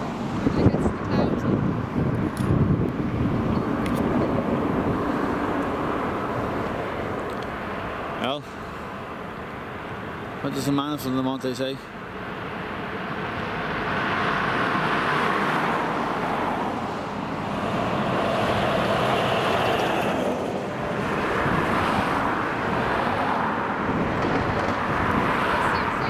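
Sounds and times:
road traffic passing: 0.0s - 26.0s.

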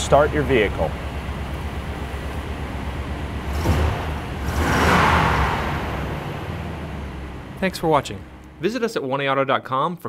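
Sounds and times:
truck engine rumbling: 0.0s - 8.9s.

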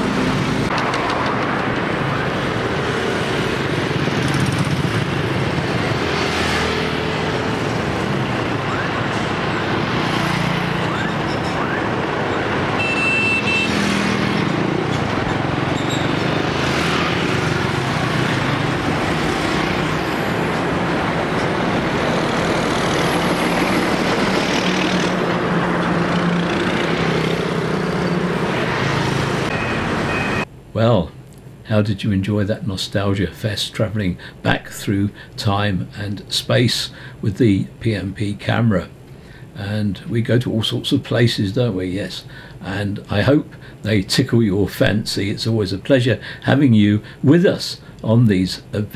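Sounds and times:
lorries and motorbikes passing: 0.0s - 30.5s
vehicle horn: 12.8s - 13.8s.

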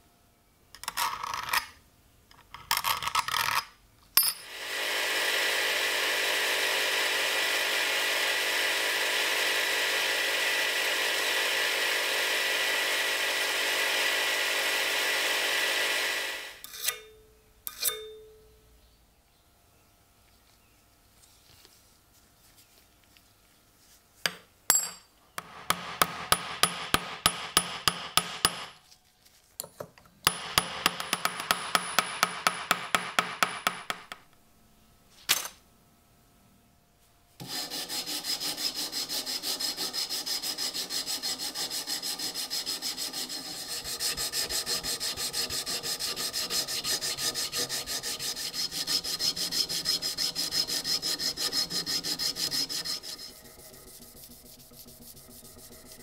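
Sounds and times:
abrasive strip rubbing on steel: 37.4s - 56.0s.

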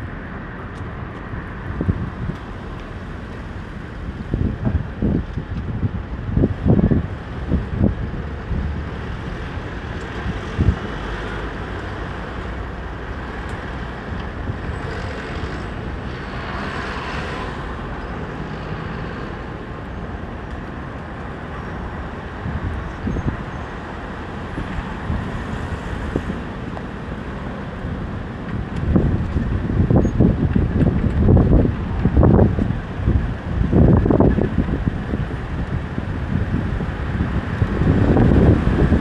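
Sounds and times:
traffic hum: 0.0s - 39.0s
vehicle passing close: 7.4s - 20.0s.

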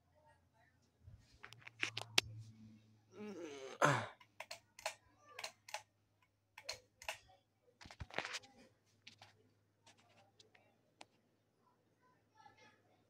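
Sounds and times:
sharp clicks: 4.2s - 5.9s, 6.6s - 7.2s.

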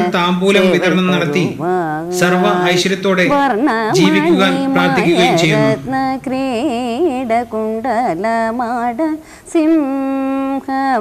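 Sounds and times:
woman singing devotional song: 0.0s - 11.0s.

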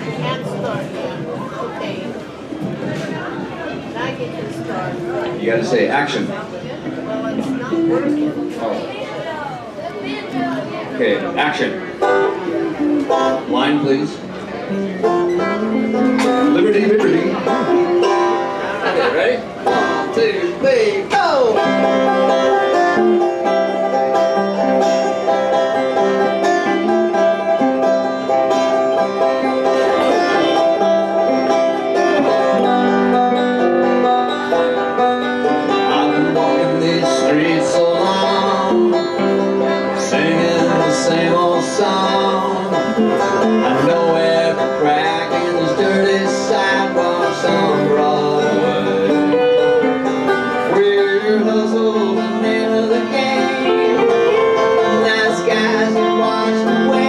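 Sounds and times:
banjo: 0.0s - 57.0s
electric guitar: 11.8s - 57.0s.

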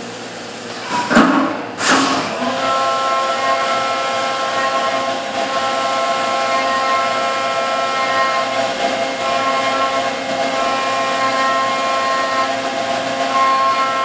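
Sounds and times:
milling spindle cutting whine: 2.0s - 14.0s.

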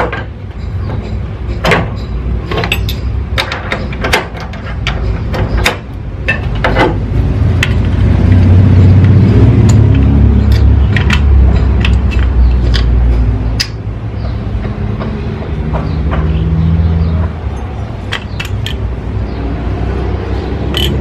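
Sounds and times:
metal tool clicks and clinks: 0.1s - 6.7s, 7.6s - 13.8s, 17.5s - 18.9s, 20.7s - 21.0s.

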